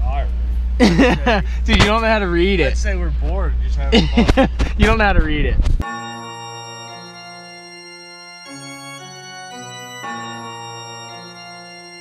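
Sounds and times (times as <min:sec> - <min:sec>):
organ-like keyboard chords: 0:00.8 - 0:03.0, 0:05.8 - 0:12.0.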